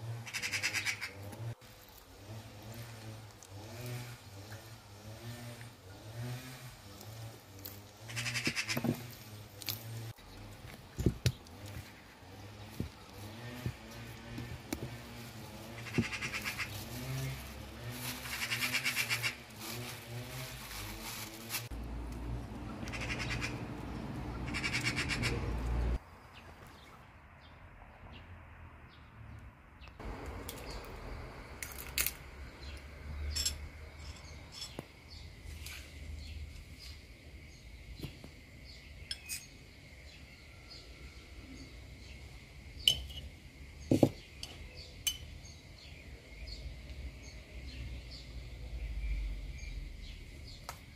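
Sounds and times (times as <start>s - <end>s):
metal spoon clinking on glass jar: 33.3s - 34.8s, 39.1s - 39.5s.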